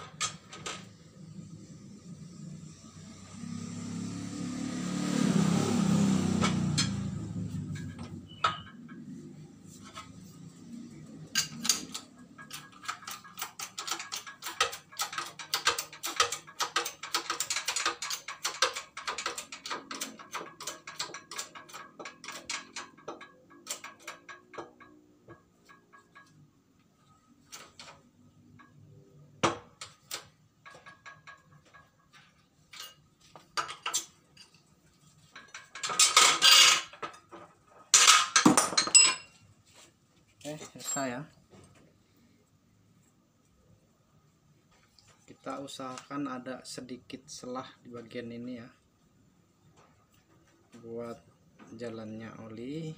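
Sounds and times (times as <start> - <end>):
metallic clicking and clanking: 0.0 - 1.0, 6.3 - 10.2, 10.9 - 39.4
metal clatter: 6.4 - 10.2, 11.2 - 39.4.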